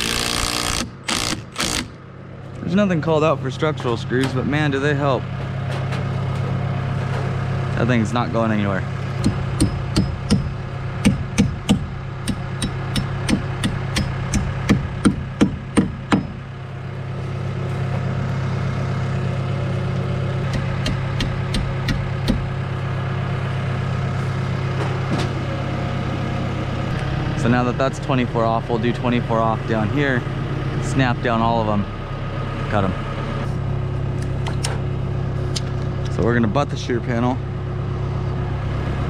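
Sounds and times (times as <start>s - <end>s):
lift engine idling: 0.0s - 39.0s
hammer striking wood: 9.2s - 16.4s, 20.5s - 22.5s.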